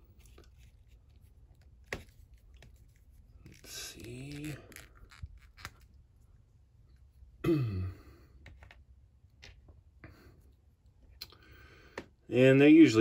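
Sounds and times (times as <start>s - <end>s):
man sighing: 7.4s - 8.4s.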